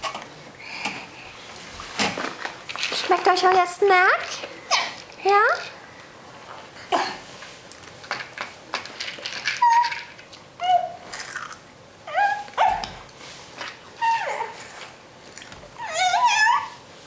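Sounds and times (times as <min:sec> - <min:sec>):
toddlers yipping like a dog: 0:04.7 - 0:05.0, 0:09.4 - 0:11.1, 0:12.1 - 0:13.0, 0:14.0 - 0:14.8, 0:15.8 - 0:16.9.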